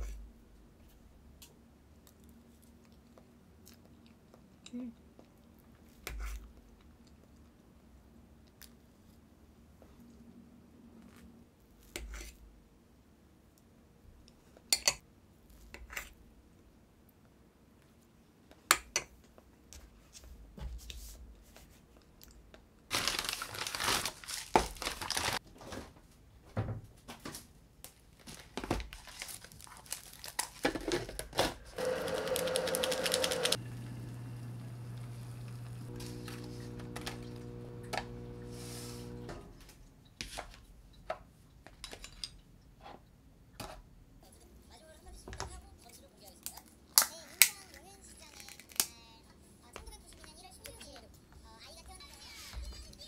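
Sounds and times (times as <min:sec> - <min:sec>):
paper bag crinkling: 0:22.9 - 0:25.4, 0:28.1 - 0:33.6
hot water pouring into cup: 0:31.8 - 0:39.3.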